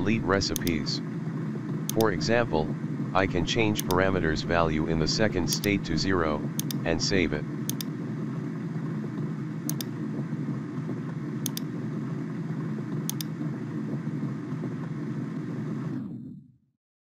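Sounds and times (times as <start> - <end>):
mouse clicks: 0.5 - 0.8, 3.8 - 4.0, 6.6 - 6.8, 7.7 - 7.9, 9.7 - 9.9, 11.4 - 11.7, 13.1 - 13.3.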